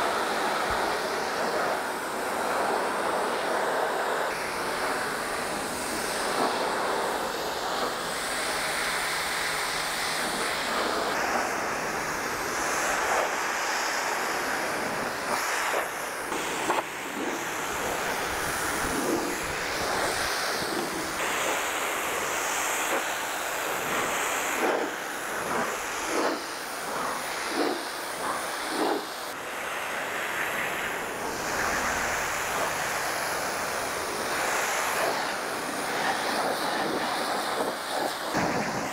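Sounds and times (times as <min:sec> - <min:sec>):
pressure washer spraying: 0:00.0 - 0:38.9.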